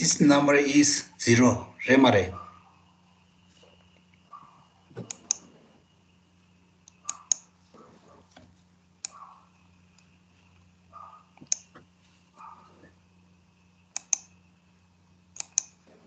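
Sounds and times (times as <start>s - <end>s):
faint electrical hum: 0.0s - 16.0s
computer mouse clicking: 3.9s - 5.5s, 6.8s - 7.5s, 9.0s - 9.3s, 11.3s - 11.8s, 13.9s - 14.4s, 15.3s - 15.8s.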